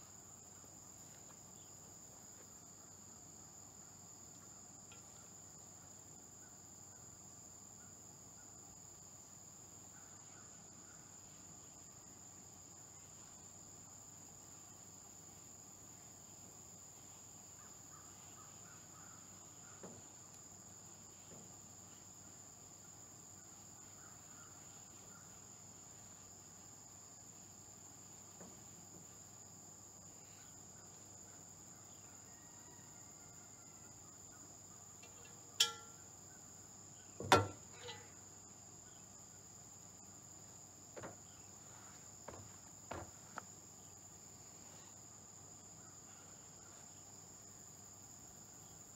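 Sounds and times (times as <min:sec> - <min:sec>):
insects chirring: 0:00.0 - 0:48.9
faint knocks: 0:37.2 - 0:38.1, 0:41.0 - 0:41.3, 0:42.2 - 0:43.4.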